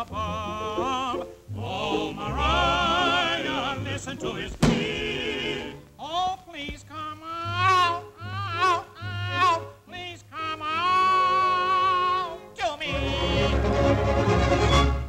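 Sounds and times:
voices singing with vibrato: 0:00.0 - 0:06.0, 0:06.6 - 0:14.1
band accompaniment: 0:01.8 - 0:05.7, 0:12.9 - 0:15.0
sharp thump: 0:04.5 - 0:05.1.

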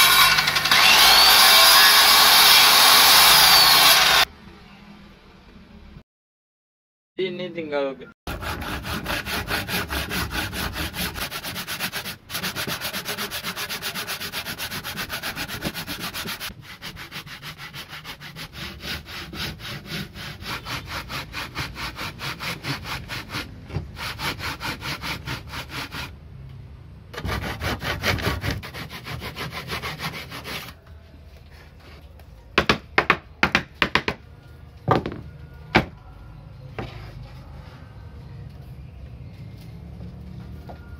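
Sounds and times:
hand saw cutting wood: 0:08.3 - 0:26.1, 0:27.2 - 0:30.8.

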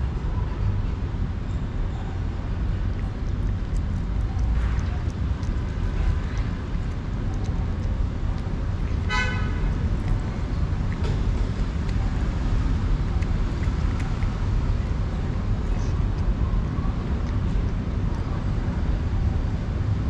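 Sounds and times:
road traffic rumble: 0:00.0 - 0:20.0
cat chewing wet food: 0:02.2 - 0:20.0
vehicle horn toot: 0:09.1 - 0:09.6.

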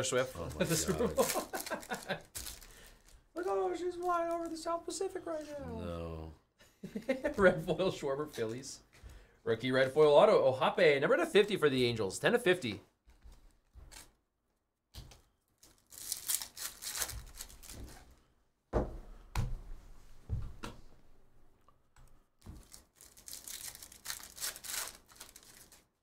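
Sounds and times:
foil wrapper crinkling and tearing: 0:00.4 - 0:05.5, 0:15.5 - 0:18.0, 0:22.5 - 0:26.0
cards flipping and sliding: 0:13.1 - 0:14.2.

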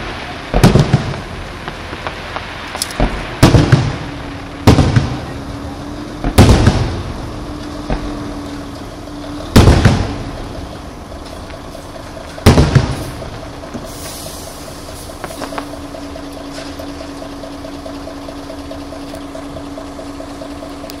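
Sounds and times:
firework booms: 0:00.0 - 0:16.0
firework crackling: 0:00.0 - 0:21.0.

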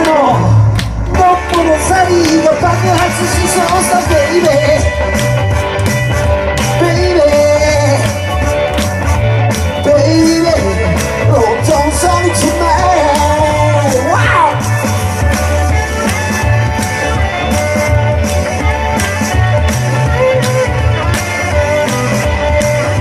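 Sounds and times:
pulsing bass line: 0:00.0 - 0:23.0
steady drum beat: 0:00.0 - 0:23.0
man singing into a microphone: 0:01.1 - 0:05.0, 0:06.8 - 0:08.2, 0:09.8 - 0:14.6.

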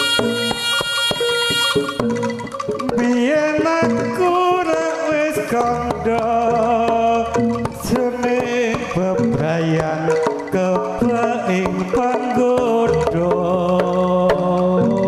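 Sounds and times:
wavering melody line: 0:00.0 - 0:04.8
hand drums beating rapidly: 0:00.0 - 0:15.0.

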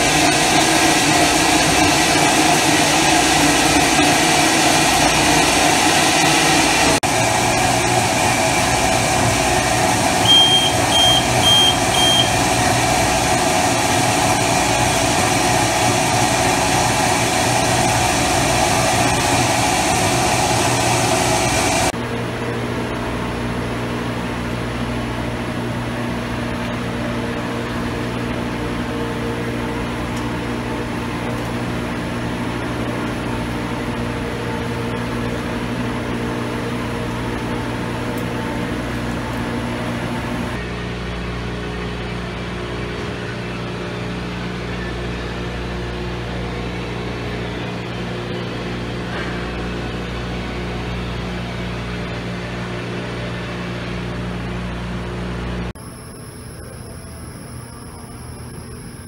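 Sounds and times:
machinery hum: 0:00.0 - 0:59.0
short high beeps: 0:10.2 - 0:12.4.

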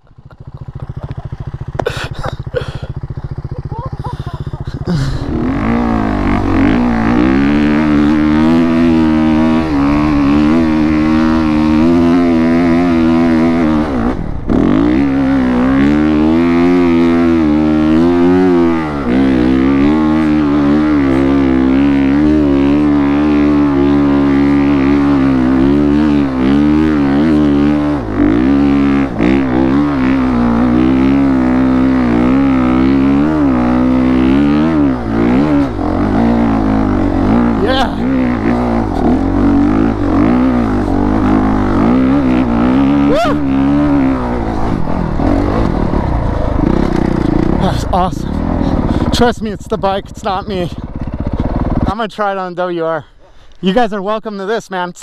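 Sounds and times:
dirt bike engine revving: 0:00.0 - 0:53.1.

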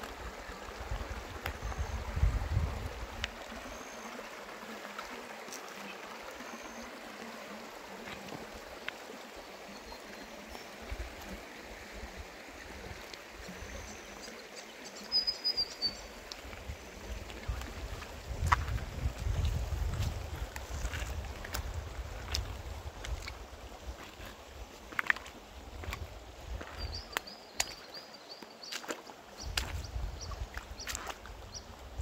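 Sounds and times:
water flowing over stones: 0:00.0 - 0:32.0
wind on microphone: 0:00.8 - 0:03.3, 0:16.5 - 0:24.2, 0:29.4 - 0:32.0.

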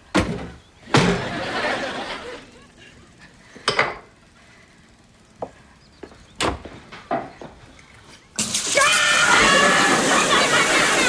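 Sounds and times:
tap gushing water: 0:08.4 - 0:11.0.

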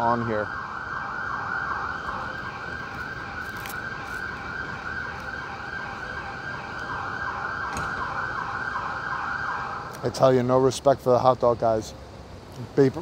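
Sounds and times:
siren yelping: 0:00.0 - 0:10.0
city traffic hum: 0:00.0 - 0:13.0.

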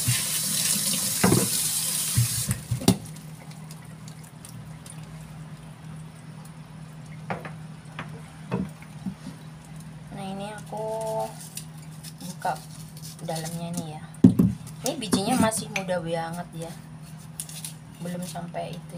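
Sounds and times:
tap water running into sink: 0:00.0 - 0:03.8
knife knocking on cutting board: 0:14.2 - 0:15.8.

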